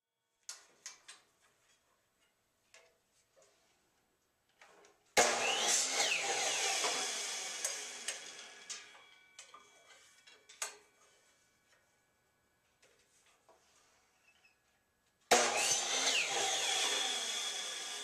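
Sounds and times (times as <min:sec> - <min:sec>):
miter saw cutting wood: 0:05.2 - 0:09.1, 0:15.3 - 0:18.0.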